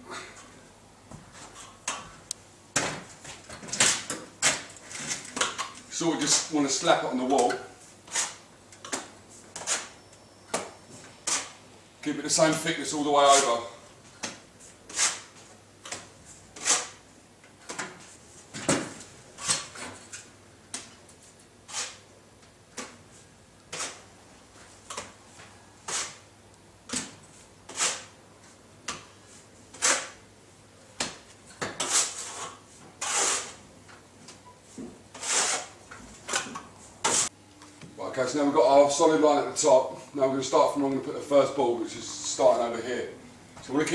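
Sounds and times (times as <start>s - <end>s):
trowel scraping on wall: 7.3s - 10.0s, 11.2s - 11.6s, 14.9s - 17.0s, 21.6s - 22.1s, 23.7s - 24.0s, 25.8s - 26.3s, 27.7s - 28.2s, 29.7s - 30.2s, 31.6s - 33.6s, 35.1s - 37.3s.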